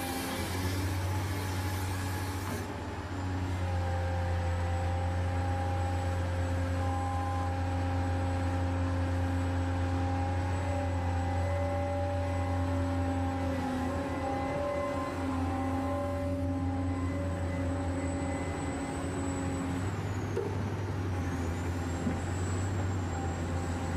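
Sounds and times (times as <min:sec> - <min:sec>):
electric motors humming and whining: 0:00.0 - 0:23.9.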